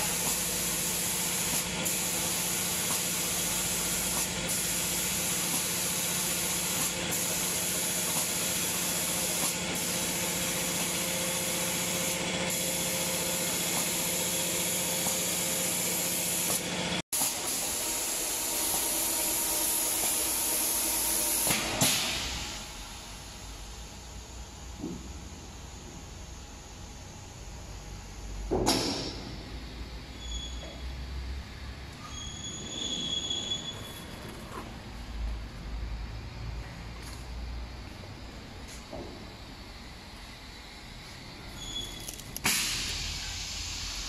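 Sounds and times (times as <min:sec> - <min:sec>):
spray guns hissing: 0:00.0 - 0:22.1.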